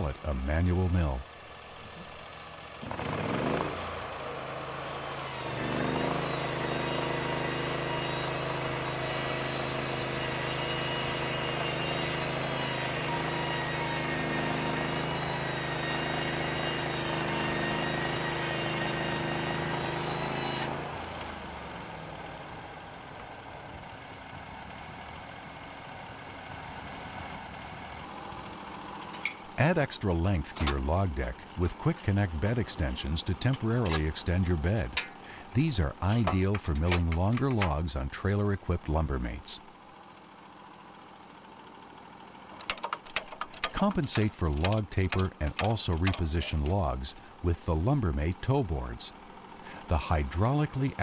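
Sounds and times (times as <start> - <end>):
sawmill engine running: 0.0 - 51.0
saw blade cutting log: 2.8 - 4.2, 4.9 - 20.8, 29.6 - 38.1, 43.7 - 47.3.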